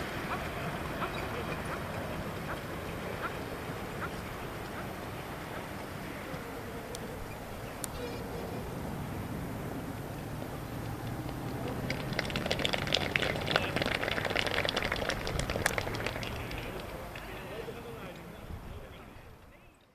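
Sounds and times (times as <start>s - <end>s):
crowd clapping: 10.7s - 17.6s.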